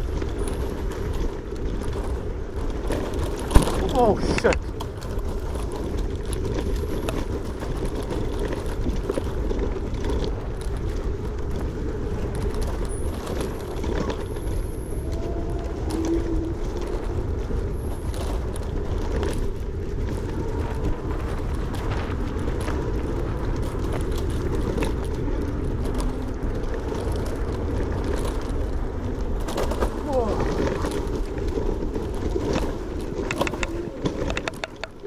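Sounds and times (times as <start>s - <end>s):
scooter knocking over bumps: 0.0s - 10.8s, 27.0s - 35.0s
tyres rumbling on dirt trail: 0.0s - 35.0s
wind on microphone: 0.0s - 35.0s.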